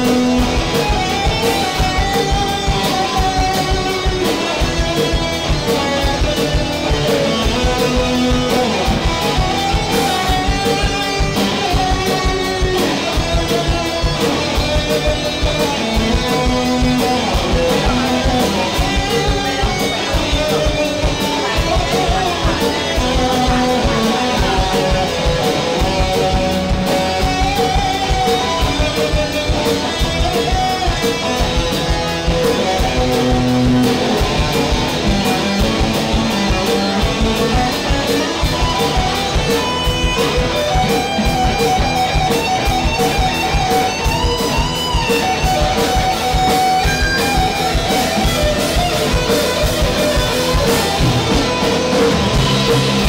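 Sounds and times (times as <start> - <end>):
bass guitar: 0.0 - 53.0
drum kit beat: 0.0 - 53.0
electric guitar solo: 0.0 - 53.0.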